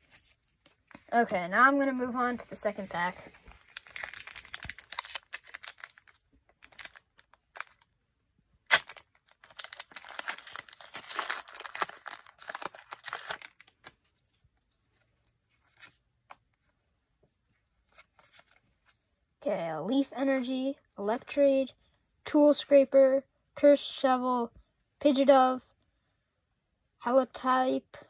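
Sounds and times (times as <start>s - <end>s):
wrapper crinkling: 3.3s - 7.9s, 8.6s - 14.0s
foil wrapper tearing: 3.7s - 7.9s, 8.6s - 13.8s.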